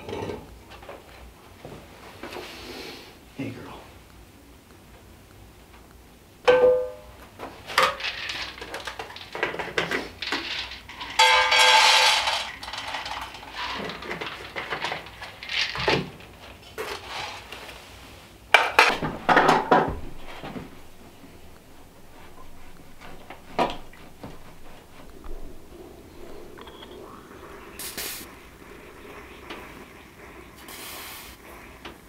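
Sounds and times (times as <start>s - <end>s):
metal pots and pans clattering: 0.0s - 0.5s, 6.5s - 16.4s, 18.6s - 26.7s
ringing metal strike: 6.5s - 7.1s.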